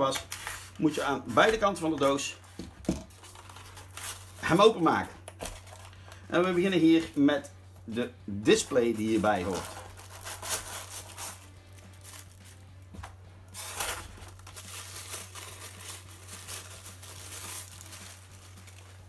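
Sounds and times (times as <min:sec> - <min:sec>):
plastic wrapping crinkling: 0:03.1 - 0:07.2, 0:08.7 - 0:12.8, 0:13.6 - 0:19.0.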